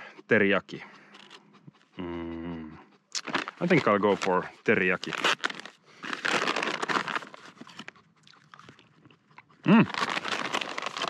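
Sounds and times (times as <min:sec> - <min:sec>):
plastic packet crinkling: 0:03.2 - 0:07.9, 0:09.7 - 0:11.0.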